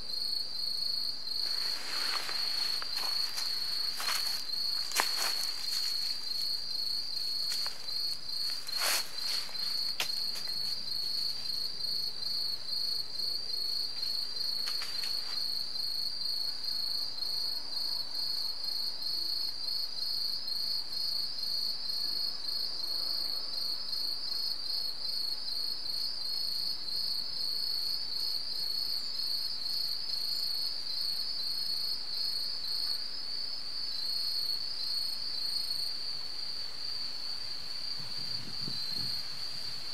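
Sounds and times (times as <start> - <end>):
insects chirping in a high trill: 0.0 - 39.9
rustling: 1.4 - 11.6.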